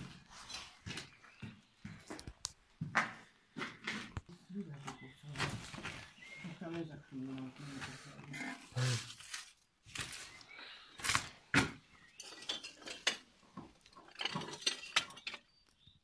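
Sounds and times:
hard objects clinking and knocking: 11.1 - 15.7
rattles: 13.8 - 15.5.

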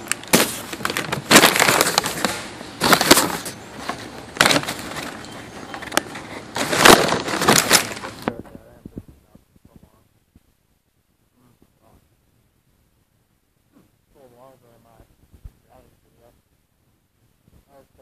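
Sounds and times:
cardboard box crackling and rustling: 0.0 - 8.2.

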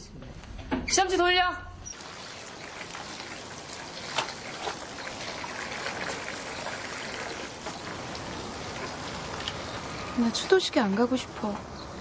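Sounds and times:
tap water splashing into basin: 2.0 - 9.6.

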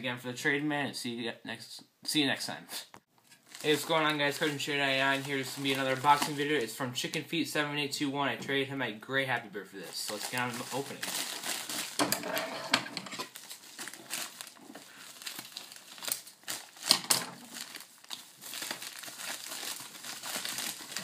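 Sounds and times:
plastic bag crinkling: 3.3 - 6.8, 9.9 - 12.5, 13.2 - 21.0.

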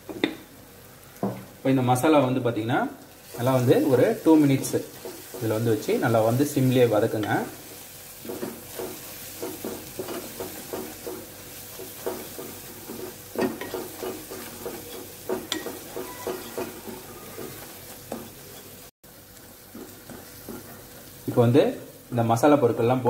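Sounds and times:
low sizzle: 0.0 - 23.0
spatula scraping a pan: 6.7 - 18.9.

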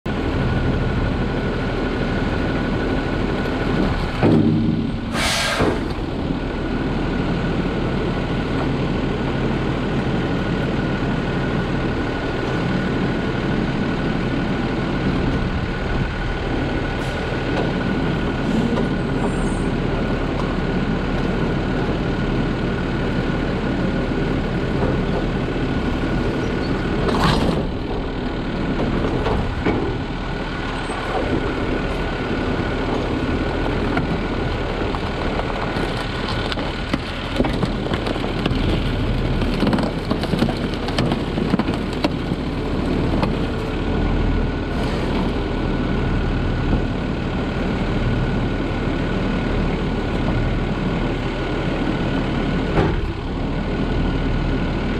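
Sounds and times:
diesel truck engine running: 0.1 - 54.9
air hissing: 5.0 - 5.9.

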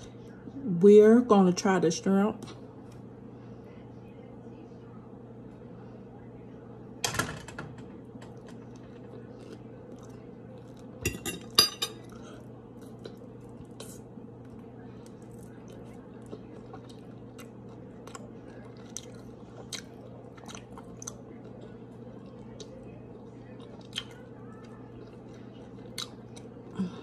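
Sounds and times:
steady low hum: 0.0 - 27.0
chewing and lip smacking: 8.3 - 11.0, 12.0 - 26.7.

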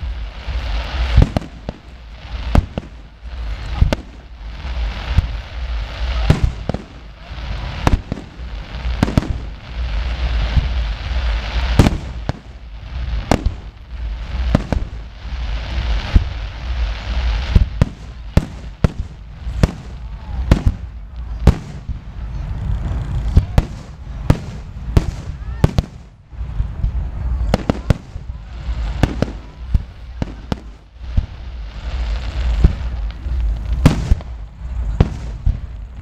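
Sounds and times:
fireworks bursting: 0.0 - 36.0
steady hiss: 0.0 - 36.0.

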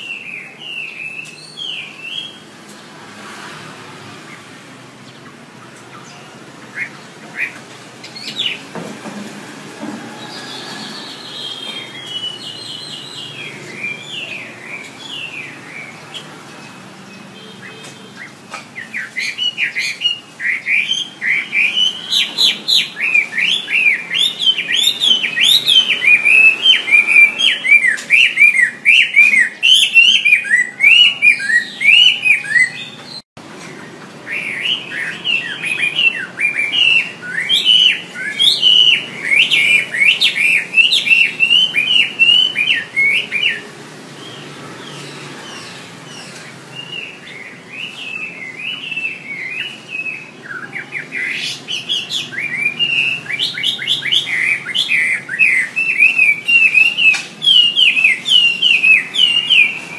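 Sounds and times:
bird singing whistled phrases: 17.4 - 33.0, 34.3 - 43.7, 46.8 - 59.9.

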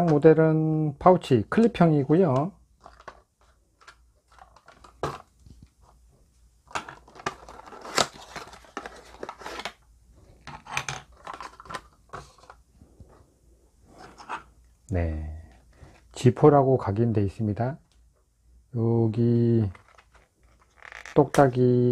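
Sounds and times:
rustling and scraping on a tabletop: 2.8 - 14.6, 19.7 - 21.2.

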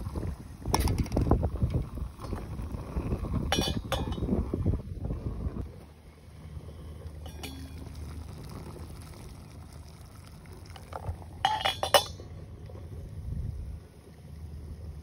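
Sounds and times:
low steady rumble: 0.0 - 15.0
metal pot lid clinking: 3.5 - 4.3, 7.2 - 7.8, 11.4 - 12.2.

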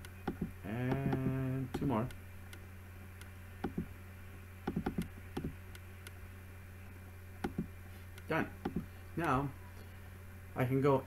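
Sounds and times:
steady low hum: 0.0 - 11.0
computer mouse clicking: 4.7 - 6.2, 7.4 - 9.4.

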